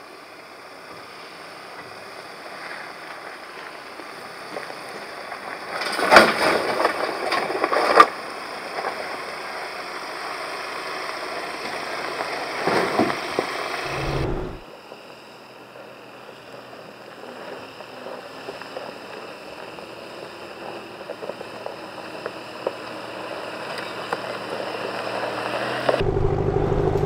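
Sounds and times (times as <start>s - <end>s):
pickup engine running low: 6.7s - 27.0s
tyre and trail rumble: 11.4s - 14.6s.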